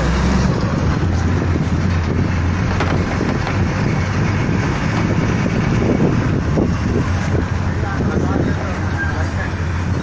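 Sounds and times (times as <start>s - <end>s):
vehicle engine and road hum: 0.0s - 10.0s
wind buffeting microphone: 0.0s - 10.0s.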